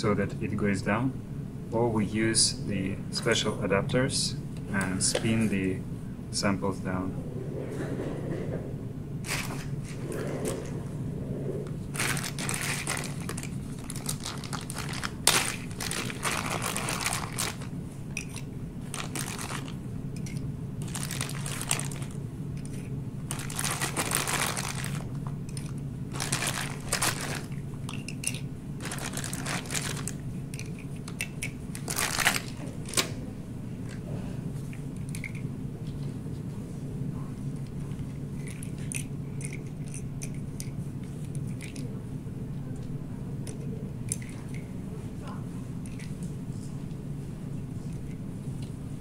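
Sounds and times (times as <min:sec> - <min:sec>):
steady low hum: 0:00.0 - 0:49.0
plastic bag crinkling: 0:11.8 - 0:19.8, 0:20.8 - 0:22.2, 0:22.8 - 0:28.0, 0:28.8 - 0:30.2, 0:31.8 - 0:33.2.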